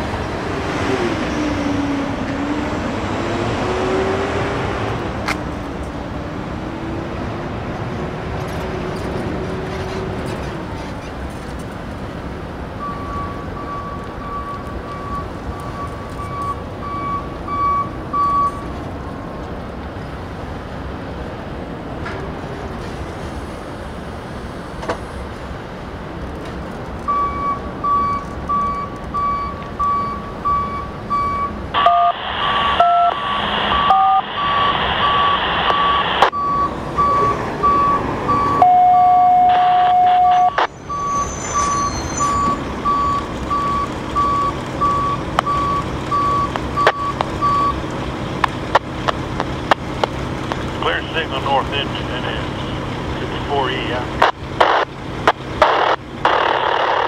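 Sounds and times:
backup alarm beeping: 12.8 - 18.6, 27.1 - 47.8.

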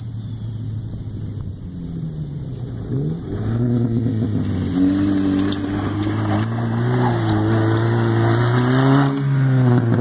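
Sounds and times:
car engine at high revs: 0.0 - 10.0.

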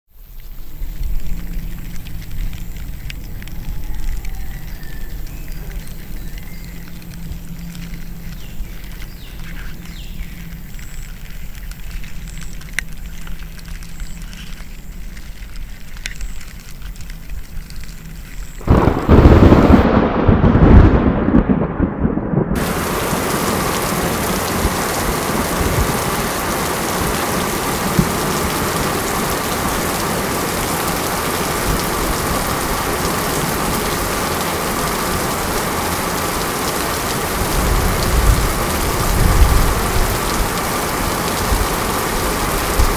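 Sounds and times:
heavy rain: 0.1 - 42.9
faint ticks: 0.3 - 19.0
thunderclap rumbling: 18.6 - 35.8, 36.7 - 42.9.

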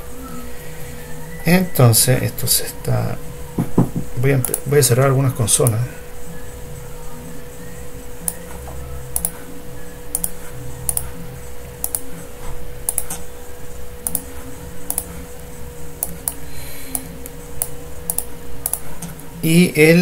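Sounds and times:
faint electrical hum: 0.0 - 20.0
computer mouse clicking: 4.4 - 4.7, 9.1 - 9.4, 10.1 - 11.2, 11.8 - 12.2, 12.8 - 13.2, 14.0 - 14.3, 14.9 - 19.2.

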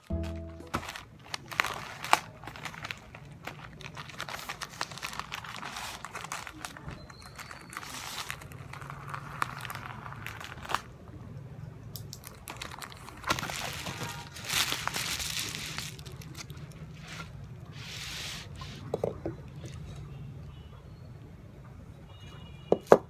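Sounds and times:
plastic and bubble wrap crinkling: 0.0 - 11.0, 12.0 - 18.9.

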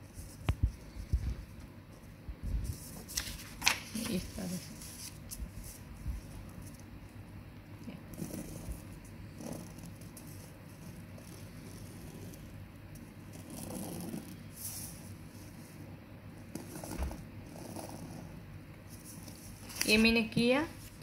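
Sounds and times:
paper shifting: 2.7 - 5.8, 19.0 - 21.0
pencil scratching on paper: 8.0 - 12.6, 13.3 - 15.1.

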